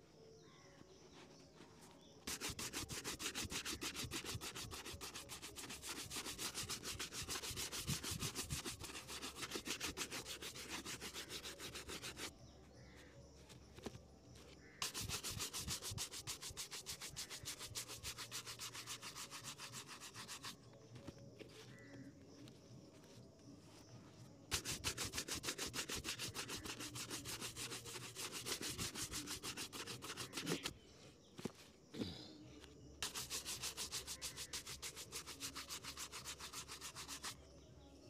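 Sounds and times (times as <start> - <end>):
brush scrubbing leather shoe: 2.2 - 12.4, 14.8 - 23.2, 24.5 - 30.7, 33.0 - 37.4.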